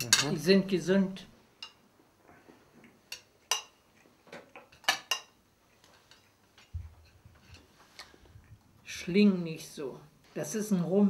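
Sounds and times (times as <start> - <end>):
cutlery clinking on a plate: 0.0 - 0.4, 3.1 - 6.7.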